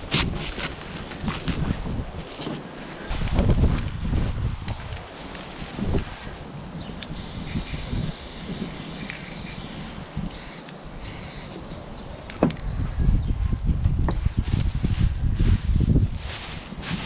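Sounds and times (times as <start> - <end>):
wind rumble on microphone: 0.0 - 17.0
spray paint can hissing: 7.0 - 12.0.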